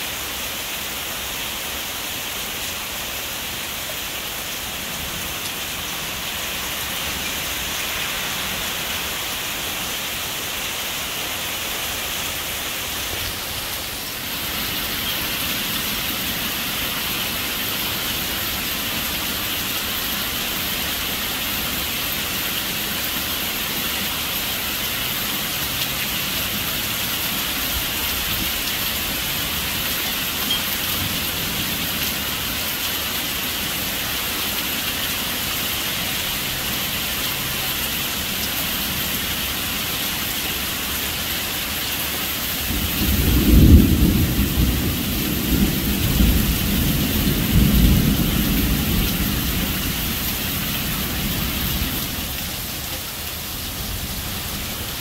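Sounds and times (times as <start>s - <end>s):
heavy rain through trees: 0.0s - 55.0s
thunder rumbling: 42.7s - 52.4s.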